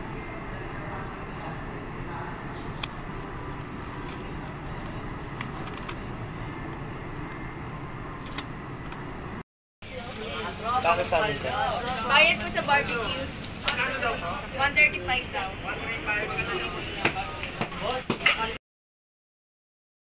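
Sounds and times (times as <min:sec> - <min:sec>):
notebook paper rustling: 0:02.6 - 0:06.0.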